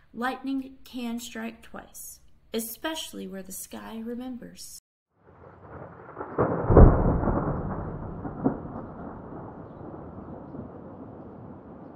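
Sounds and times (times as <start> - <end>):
thunder crack and rumble: 5.2 - 11.9.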